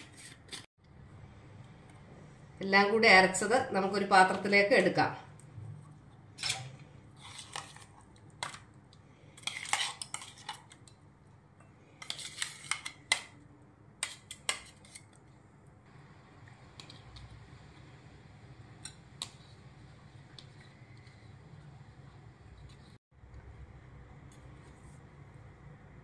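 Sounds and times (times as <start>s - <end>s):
spoon scraping metal jar: 9.4s - 10.8s.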